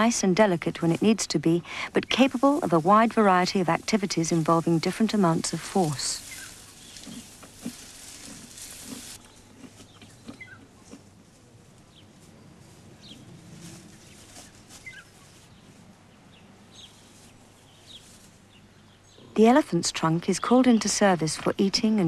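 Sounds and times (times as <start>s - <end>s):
leaves rustling and snapping: 2.0s - 10.2s.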